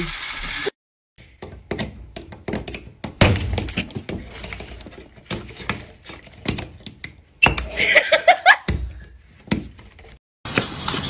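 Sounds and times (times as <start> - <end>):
knocks and thuds against drywall: 1.4 - 7.7, 8.6 - 10.0.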